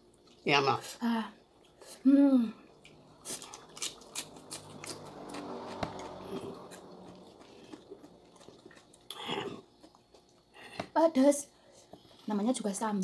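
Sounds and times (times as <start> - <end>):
faint low hum: 0.0 - 13.0
crunching raw vegetables: 2.8 - 10.8.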